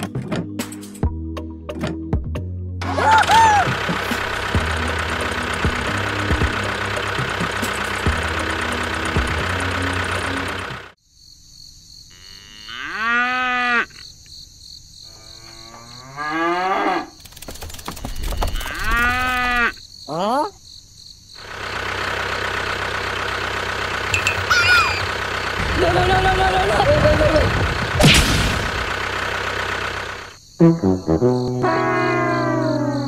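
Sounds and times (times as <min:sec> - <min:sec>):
tractor engine running: 0:02.8 - 0:11.0, 0:17.2 - 0:19.7, 0:21.4 - 0:30.4
crickets chirping: 0:11.0 - 0:22.1, 0:29.1 - 0:33.0
cow mooing: 0:12.1 - 0:14.0, 0:15.0 - 0:17.2, 0:18.6 - 0:19.8.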